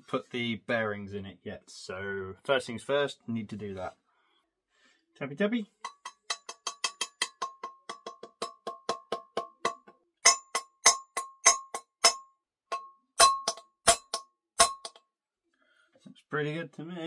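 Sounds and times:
hammer tapping metal bearing: 5.8s - 15.0s.

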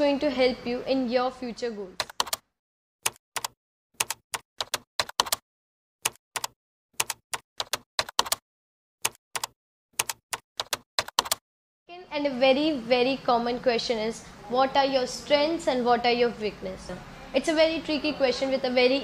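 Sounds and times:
keyboard key clicks: 3.1s - 5.4s, 6.1s - 8.4s, 9.0s - 11.4s.

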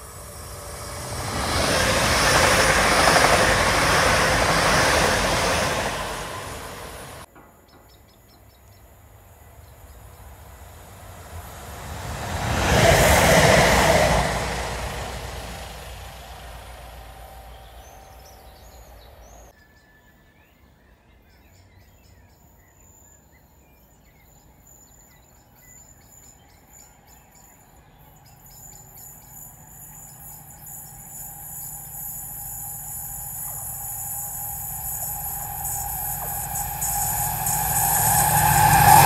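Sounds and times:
diesel locomotive approaching: 0.0s - 7.3s, 8.7s - 19.6s, 26.5s - 39.0s
passing train: 0.0s - 19.6s, 25.2s - 39.0s
birds chirping: 11.4s - 19.5s.

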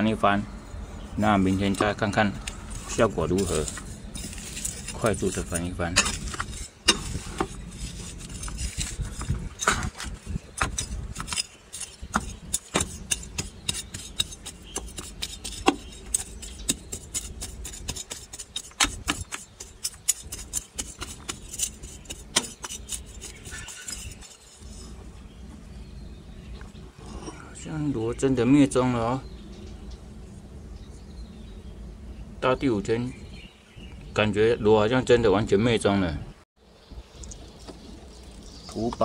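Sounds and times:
trowel scraping soil: 1.2s - 26.0s.

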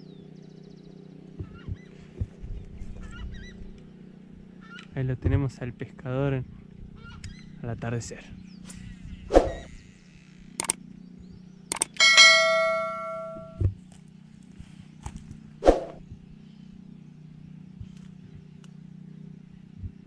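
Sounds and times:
low steady hum: 8.4s - 14.0s
bell ding: 12.0s - 13.6s.

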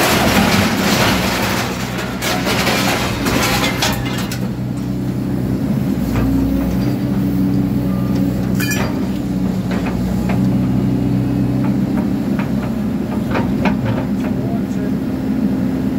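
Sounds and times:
metal clanks: 0.0s - 5.0s, 8.5s - 10.4s
excavator engine and hydraulics: 0.0s - 15.9s.

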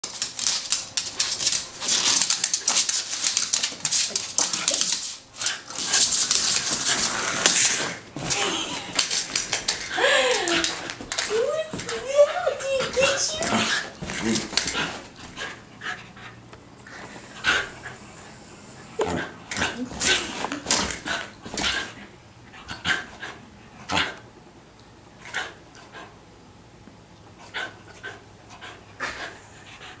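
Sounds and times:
claws scrabbling on floor: 0.0s - 7.9s.

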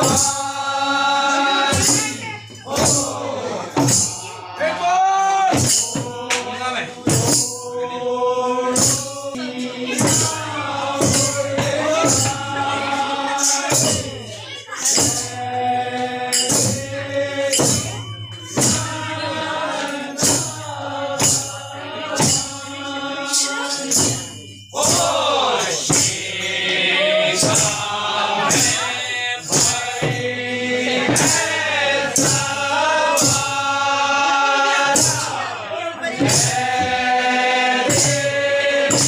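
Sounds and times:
dhol drum beat: 0.0s - 7.8s, 8.6s - 39.0s
men singing in a group: 0.0s - 39.0s
hand claps: 5.2s - 6.6s.

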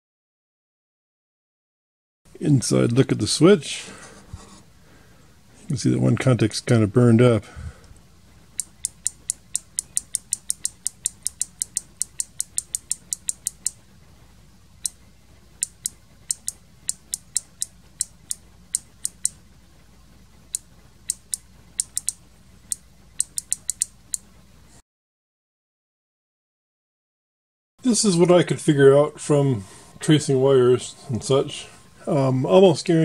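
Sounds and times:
microswitch clicking: 8.6s - 13.8s, 15.6s - 19.4s, 20.5s - 24.3s.

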